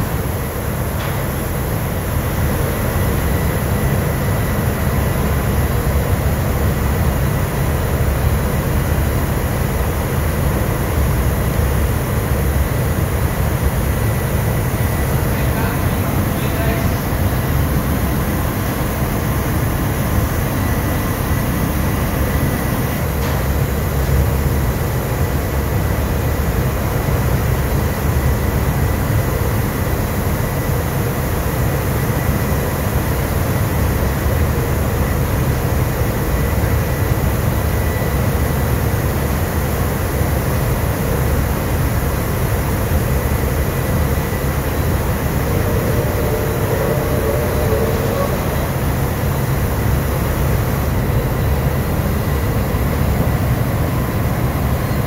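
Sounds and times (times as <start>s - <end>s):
engine room machinery drone: 0.0s - 55.0s
faint high tone: 44.0s - 50.2s.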